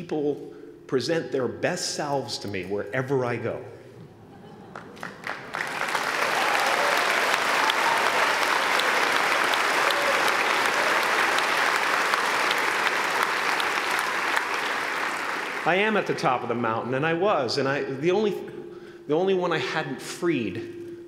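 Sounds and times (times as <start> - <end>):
large audience applauding: 4.7 - 16.4.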